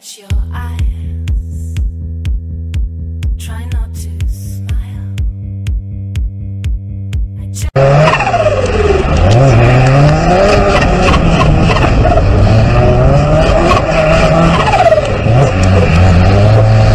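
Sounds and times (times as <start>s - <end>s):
car engine revving hard: 7.8s - 16.9s.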